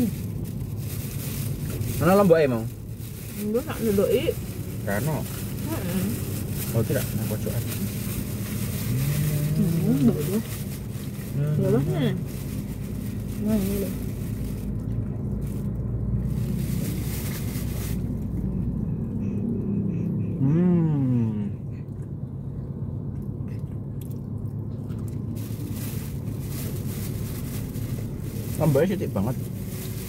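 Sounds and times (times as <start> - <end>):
car engine idling: 0.0 - 30.0
person humming: 9.0 - 10.4, 20.3 - 21.6.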